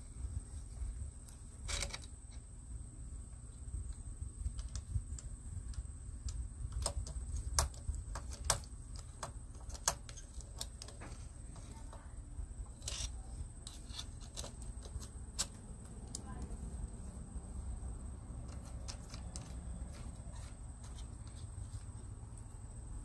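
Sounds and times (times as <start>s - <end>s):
steady low rumble: 14.7s - 23.0s.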